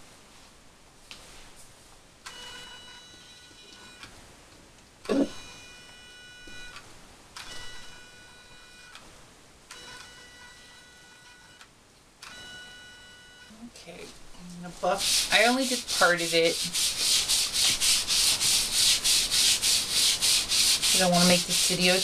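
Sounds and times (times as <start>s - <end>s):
hair removal device whirring: 14.8s - 22.0s.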